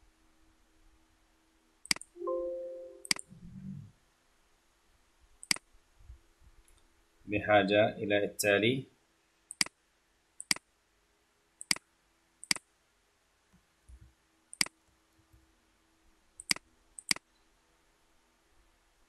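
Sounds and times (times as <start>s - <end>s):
computer mouse clicking: 1.8s - 2.1s, 3.0s - 3.3s, 5.4s - 5.6s, 9.5s - 9.8s, 10.4s - 10.6s, 11.6s - 11.8s, 12.4s - 12.6s, 13.9s - 14.8s, 16.4s - 17.2s.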